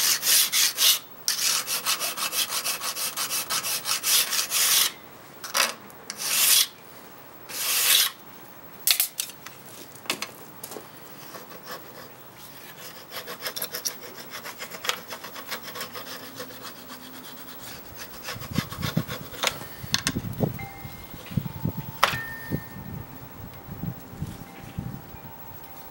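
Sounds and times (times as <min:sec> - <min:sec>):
burnisher rubbing on steel edge: 0:00.0 - 0:05.0, 0:06.1 - 0:06.7, 0:07.5 - 0:08.2, 0:11.2 - 0:19.8.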